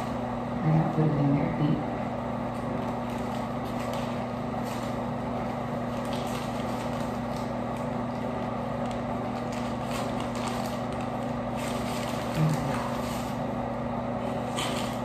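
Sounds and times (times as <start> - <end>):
ventilation fan humming: 0.0 - 15.0
paper wrapper crackling: 2.5 - 13.5, 14.2 - 15.0.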